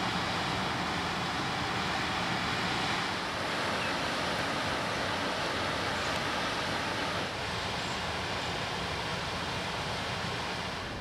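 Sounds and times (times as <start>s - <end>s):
flowing river water: 0.0s - 11.0s.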